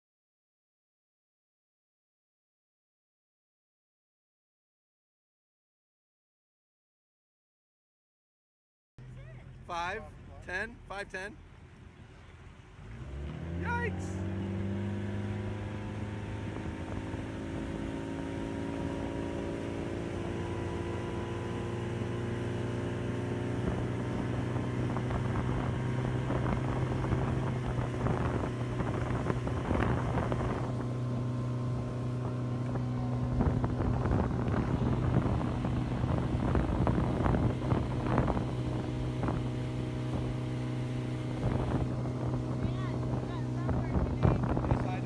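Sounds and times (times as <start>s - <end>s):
motorboat engine running: 9.0s - 45.0s
water churning: 11.2s - 45.0s
wind gusts on microphone: 14.2s - 45.0s.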